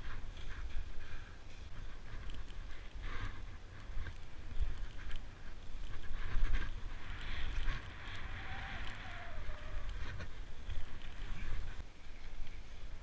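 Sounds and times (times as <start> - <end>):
wind buffeting microphone: 0.0 - 11.9
skis hissing over snow: 6.1 - 11.8.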